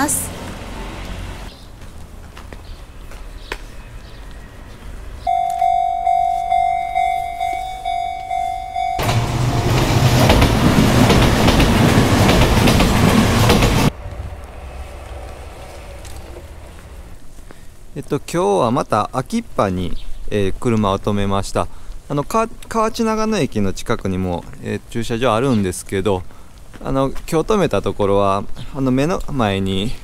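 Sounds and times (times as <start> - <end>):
train passing rattling: 0.0 - 1.5, 3.8 - 17.2
level-crossing bell ringing: 5.3 - 9.9.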